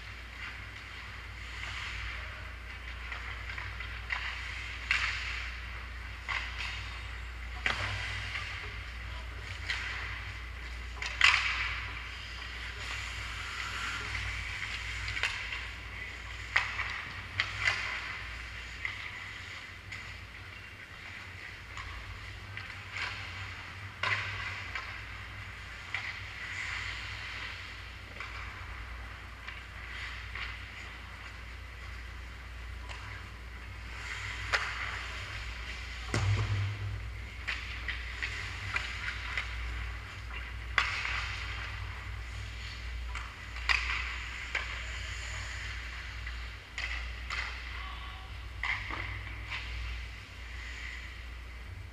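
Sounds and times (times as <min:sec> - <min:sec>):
skates scraping on ice: 0:00.0 - 0:47.8
steady low hum: 0:00.0 - 0:51.9
hockey sticks and puck knocking: 0:02.8 - 0:06.9, 0:07.5 - 0:44.8, 0:45.6 - 0:47.8
heavy thump: 0:36.0 - 0:37.4.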